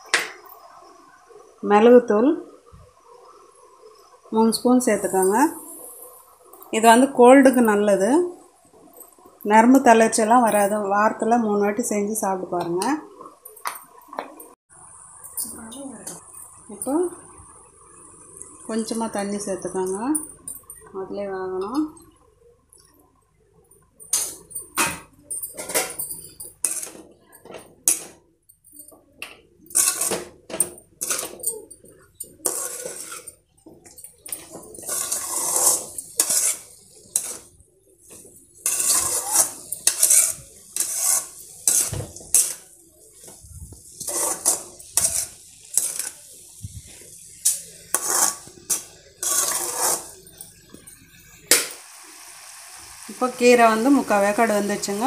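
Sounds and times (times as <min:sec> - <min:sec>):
spoon scraping metal pan: 0:24.1 - 0:27.1, 0:29.7 - 0:33.4, 0:34.1 - 0:50.6.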